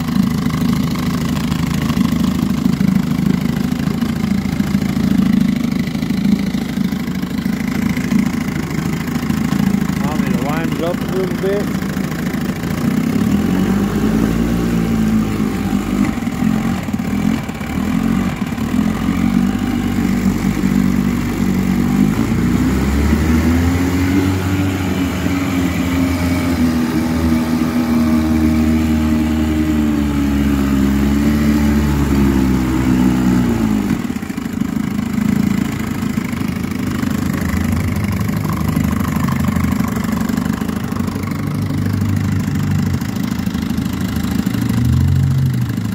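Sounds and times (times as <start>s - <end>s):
outboard engine running: 0.0s - 45.9s
propeller churning water: 0.0s - 45.9s.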